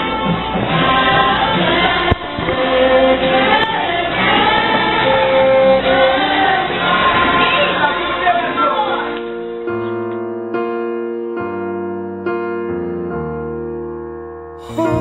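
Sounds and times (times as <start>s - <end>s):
song with voices and instruments: 0.0s - 10.2s, 14.6s - 15.0s.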